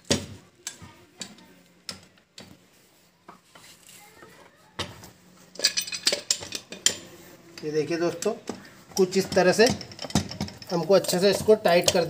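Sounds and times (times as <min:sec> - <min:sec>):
spanners clinking on metal: 0:05.5 - 0:12.0.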